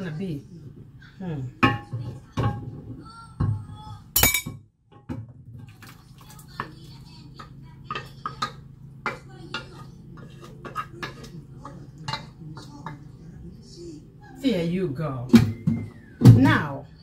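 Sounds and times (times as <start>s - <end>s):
low steady hum: 0.0s - 17.0s
spoon scraping a saucepan: 7.8s - 13.1s.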